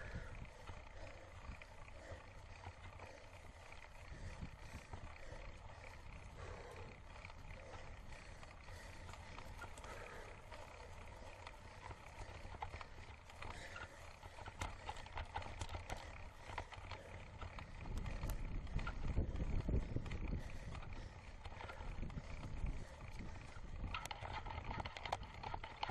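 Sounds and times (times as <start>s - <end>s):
bike clicks and rattles: 0.0s - 25.9s
wind and tyre rumble: 0.0s - 25.9s.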